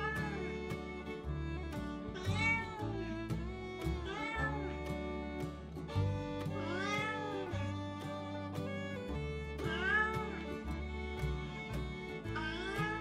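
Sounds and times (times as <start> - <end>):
cat meowing: 0.0 - 0.4, 2.2 - 2.8, 4.1 - 4.6, 6.6 - 7.6, 9.7 - 10.3, 12.4 - 13.0
fiddle music with steady beat: 0.0 - 13.0.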